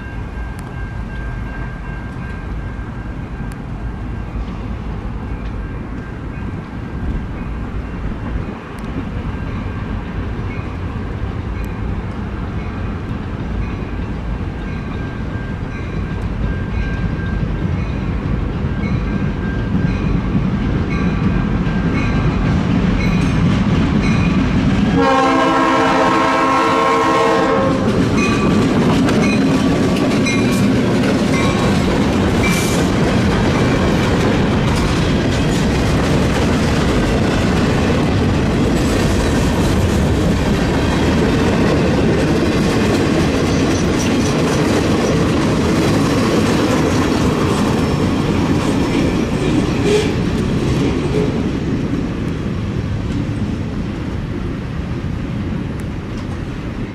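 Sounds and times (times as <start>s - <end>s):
crossing bell ringing: 0.0s - 22.4s, 23.0s - 32.8s
freight cars rumbling and clattering: 16.2s - 25.0s, 27.7s - 56.9s
locomotive horn blast: 24.9s - 28.0s, 49.8s - 50.2s.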